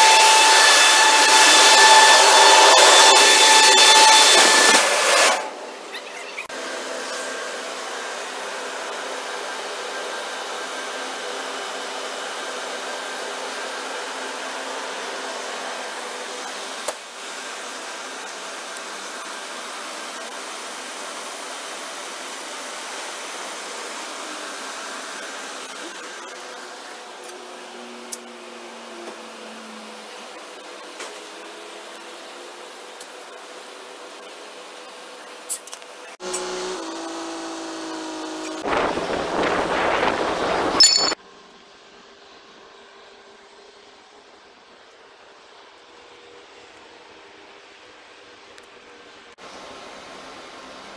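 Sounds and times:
machinery whining and whirring: 0:00.0 - 0:20.4, 0:22.4 - 0:41.2.

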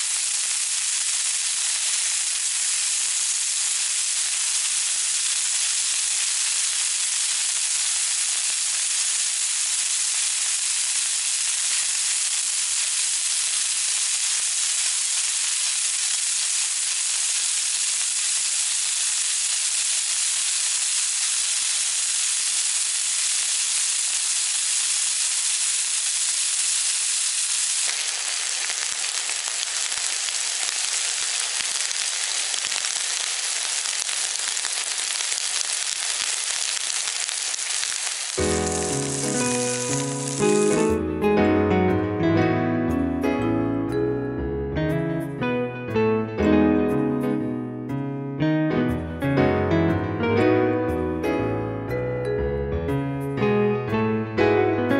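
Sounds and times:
steaks sizzling in a frying pan: 0:00.0 - 0:41.2
sauce bubbling: 0:17.0 - 0:40.9.

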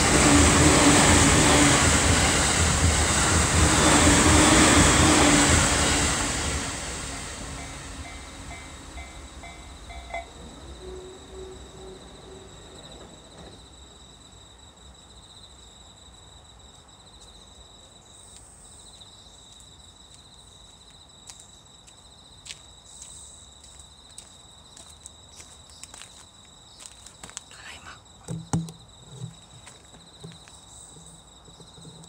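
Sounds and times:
train rumble: 0:00.0 - 0:14.3
insects trilling: 0:00.0 - 0:32.0.

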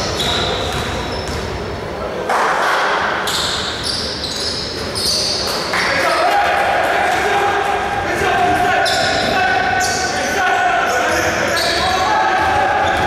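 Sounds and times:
sneaker squeaks: 0:00.0 - 0:01.7, 0:03.1 - 0:06.0, 0:08.7 - 0:10.2, 0:10.9 - 0:13.0
voices echoing in gym: 0:00.0 - 0:13.0.

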